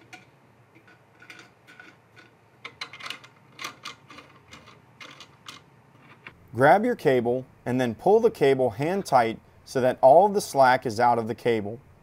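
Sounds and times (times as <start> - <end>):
metal parts clicking and tapping: 0.0 - 6.4.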